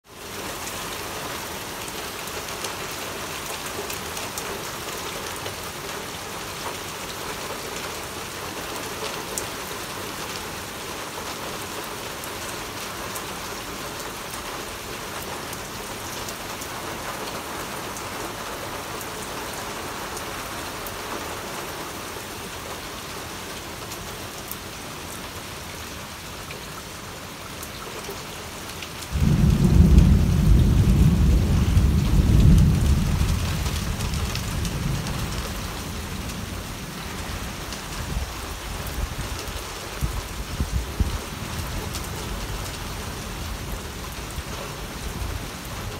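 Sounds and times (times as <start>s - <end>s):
steady rain hiss: 0.1s - 45.9s
raindrops tapping: 27.6s - 38.0s.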